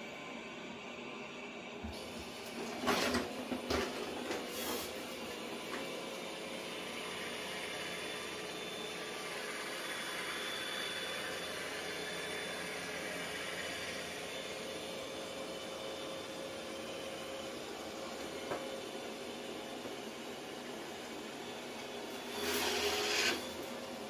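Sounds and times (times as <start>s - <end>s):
robot vacuum whirring hiss: 22.1s - 23.6s.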